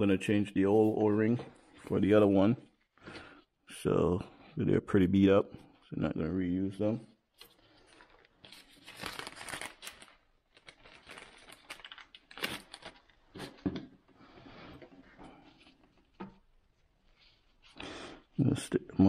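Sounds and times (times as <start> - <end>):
plastic bag crinkling: 7.4 - 13.6.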